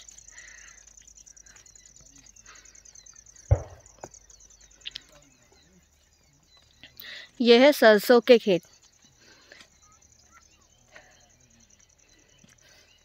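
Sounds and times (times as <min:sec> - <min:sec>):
crickets trilling: 0:00.0 - 0:13.0
dull thump: 0:03.5 - 0:04.1.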